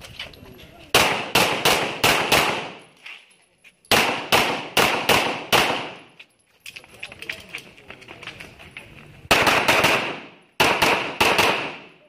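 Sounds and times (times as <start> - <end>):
pistol shots with echo: 0.9 - 2.8, 3.9 - 6.1, 9.3 - 12.0.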